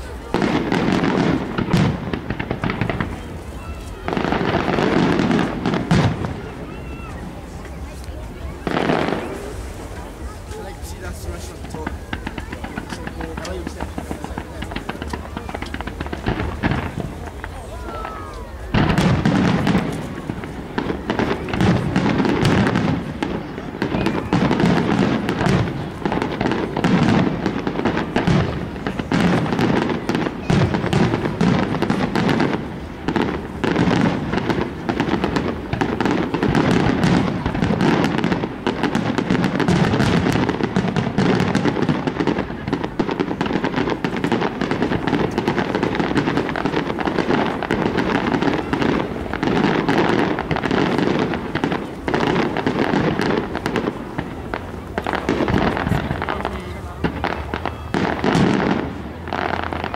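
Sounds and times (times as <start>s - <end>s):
fireworks bangs and crackle: 0.0s - 59.9s.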